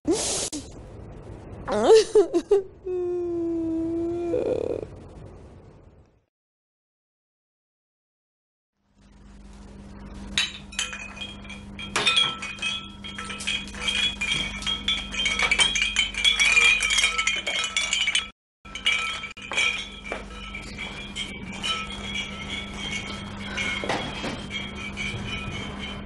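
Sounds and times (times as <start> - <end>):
steady low hum: 8.8 - 26.0
china cups clinking: 10.3 - 26.0.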